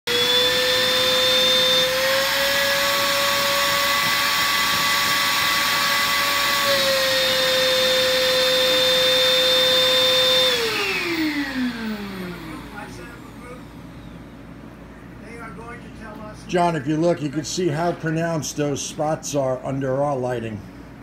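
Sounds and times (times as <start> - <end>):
shop vacuum whining: 0.0 - 14.6
vacuum motor spinning down: 0.1 - 14.2.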